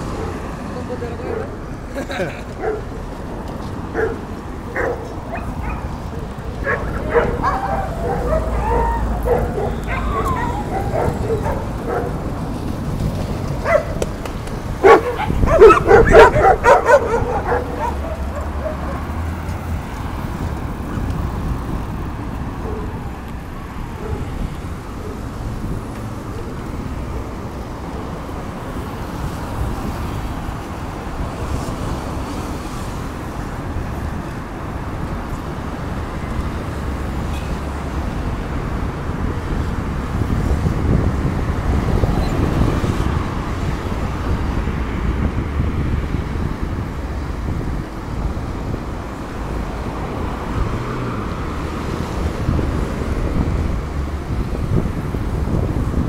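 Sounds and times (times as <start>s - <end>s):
road traffic noise: 0.0s - 56.0s
dog barking: 2.6s - 2.9s, 3.9s - 6.0s, 6.6s - 12.2s, 13.6s - 14.0s, 14.8s - 19.1s, 24.0s - 24.3s.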